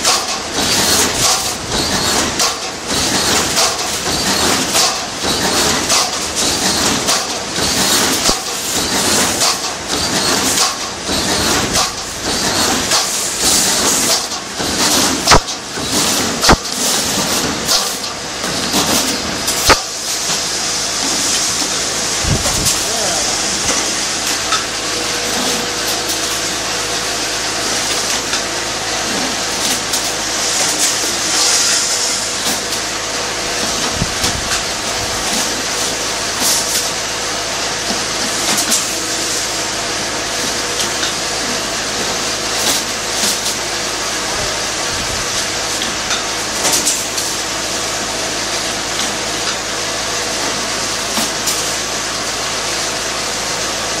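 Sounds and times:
sharp machine clack: 0.0 - 32.9
welding machine hum and hiss: 0.0 - 54.0.

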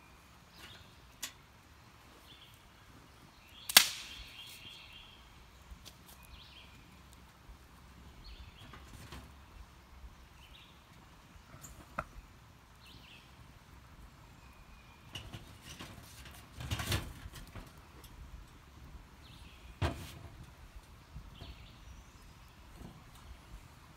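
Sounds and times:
small birds chirping: 0.0 - 16.4, 17.4 - 23.9
sticks snapping and knocking: 3.7 - 4.6.

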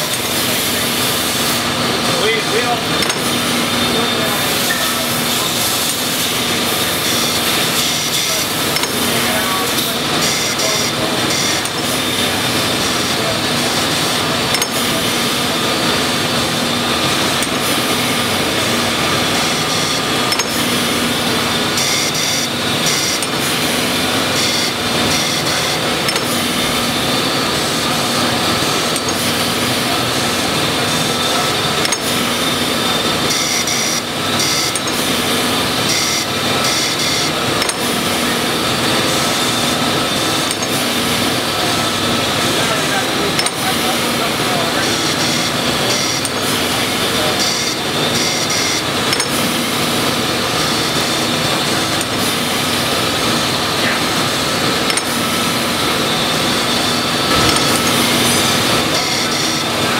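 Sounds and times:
grinder wheel grinding steel: 2.3 - 59.9.

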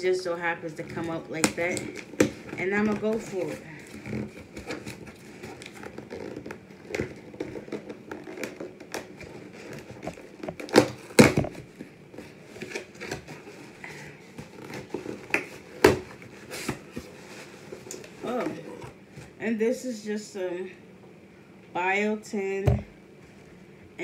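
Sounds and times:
cardboard box scraping and crinkling: 0.9 - 11.2.

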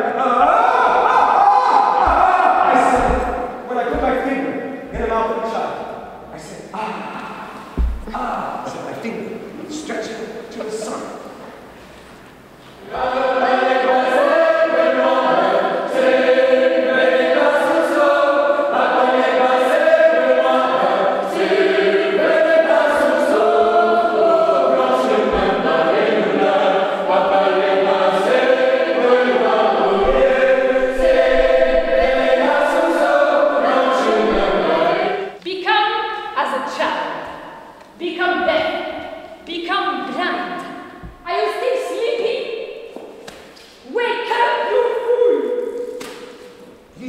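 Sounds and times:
voices singing together: 0.0 - 8.4, 12.7 - 35.4.

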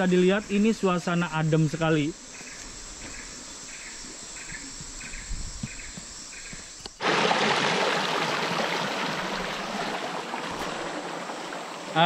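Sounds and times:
insects chirping: 0.0 - 12.0
river flowing: 7.0 - 12.0.

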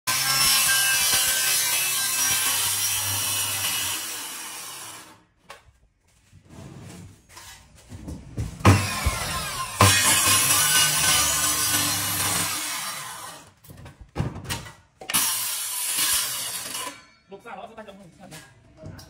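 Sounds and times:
power tool grinding: 0.1 - 5.2, 8.6 - 13.6, 15.0 - 17.2
loud thump: 8.6 - 10.2.

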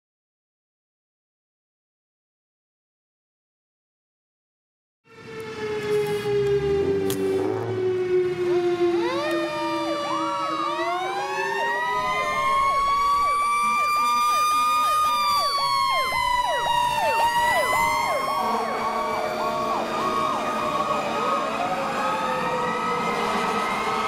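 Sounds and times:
wailing siren: 5.0 - 24.0
fast electronic yelp siren: 5.1 - 24.0.

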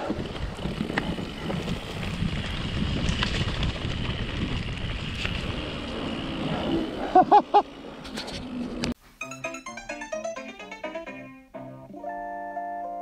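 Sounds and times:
bike knocks and rattles: 0.0 - 6.2
wind buffeting microphone: 0.0 - 6.8.

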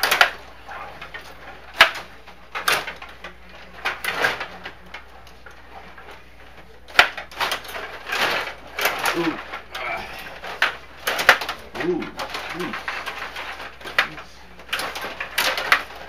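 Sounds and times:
plastic clacks of table hockey: 1.0 - 3.2, 10.4 - 16.0.

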